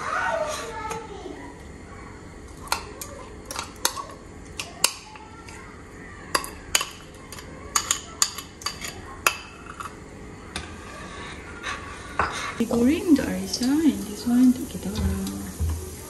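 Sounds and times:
spoon clinking against a bowl: 6.3 - 10.0.

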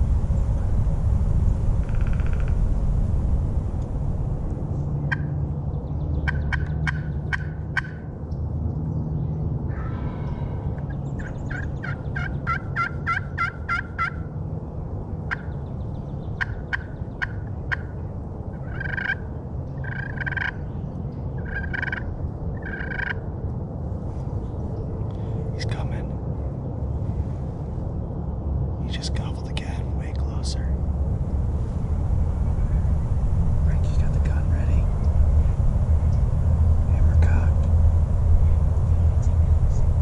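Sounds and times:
turkey call yelps and clucks: 11.2 - 14.2, 18.6 - 19.2, 19.8 - 20.6, 21.4 - 23.2
turkey gobbling: 11.5 - 14.2, 18.7 - 19.2, 19.8 - 20.6, 21.4 - 23.2.

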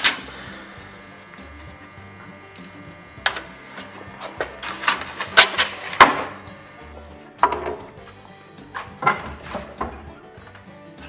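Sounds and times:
wooden lumber knocking: 5.4 - 6.5, 7.4 - 8.0, 8.7 - 10.6.

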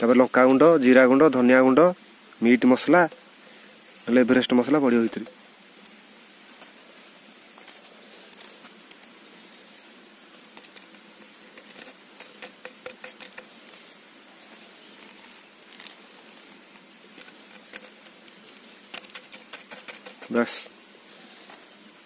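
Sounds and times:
faint background hiss: 0.0 - 22.0
plastic sachets crinkling: 10.5 - 20.4.

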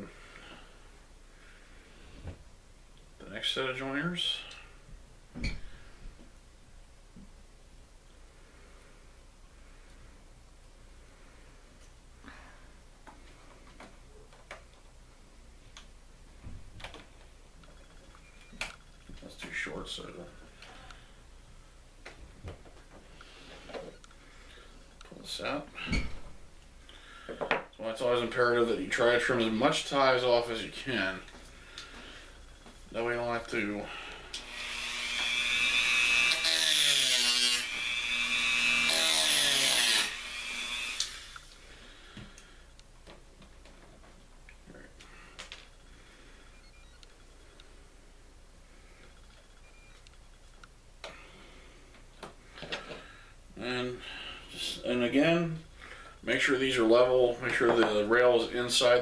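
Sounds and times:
rotary tool cutting metal: 34.4 - 41.4.

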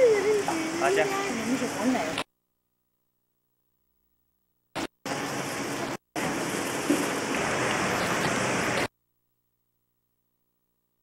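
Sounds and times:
hiss-like outdoor background noise: 0.0 - 2.3, 4.8 - 9.0.

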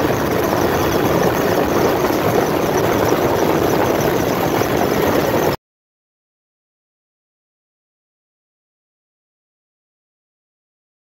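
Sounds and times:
aircraft engine noise in cabin: 0.0 - 5.6.

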